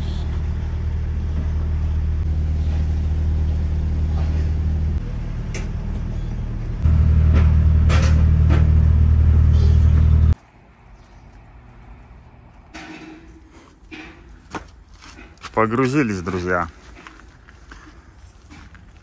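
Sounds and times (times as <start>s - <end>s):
diesel truck engine running: 0.0s - 10.4s
outdoor background noise: 0.0s - 19.0s.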